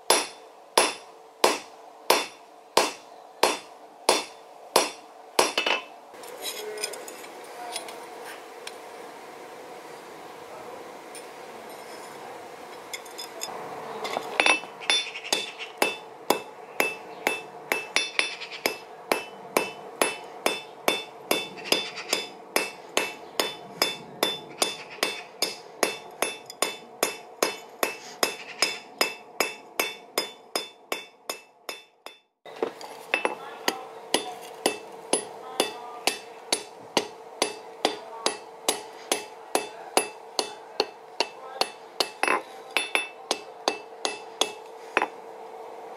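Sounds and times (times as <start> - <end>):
hammer striking metal on anvil: 0.1 - 5.9, 14.4 - 32.3, 33.2 - 45.2.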